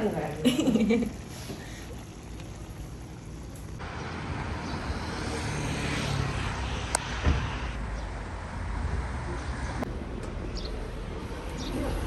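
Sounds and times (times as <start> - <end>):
passing car rumble: 3.8 - 12.0
thump: 7.2 - 7.7.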